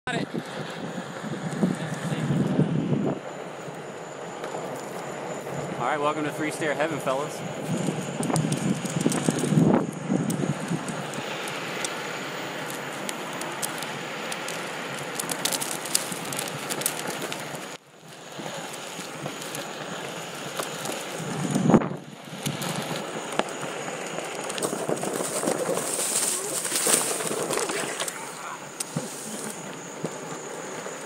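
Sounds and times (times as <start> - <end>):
tyre rolling over pavement: 7.5 - 31.0.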